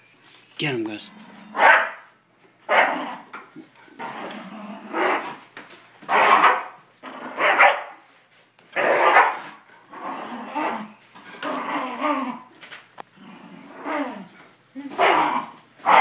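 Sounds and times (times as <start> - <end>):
dogs growling: 1.0 - 1.8, 2.7 - 5.5, 7.0 - 7.6, 8.8 - 16.0
dogs barking: 1.6 - 2.1, 2.7 - 3.1, 6.1 - 8.0, 8.8 - 9.6, 15.0 - 16.0.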